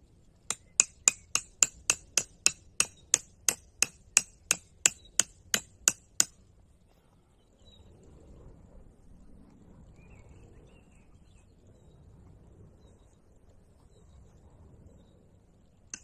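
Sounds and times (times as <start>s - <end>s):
hammer striking metal: 0.5s - 6.4s.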